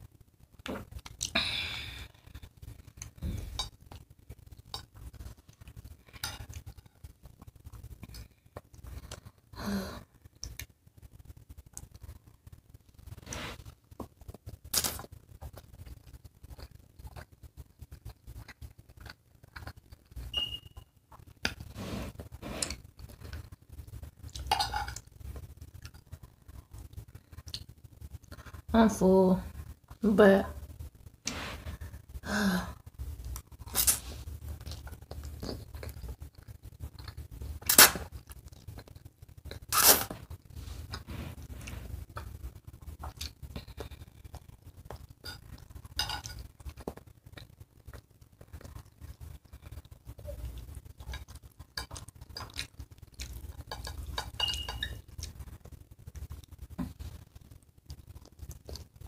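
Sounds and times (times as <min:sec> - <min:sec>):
chewing and mouth sounds: 0:13.0 - 0:20.3, 0:33.0 - 0:59.0
person slurping spaghetti: 0:13.2 - 0:13.7, 0:21.5 - 0:22.8.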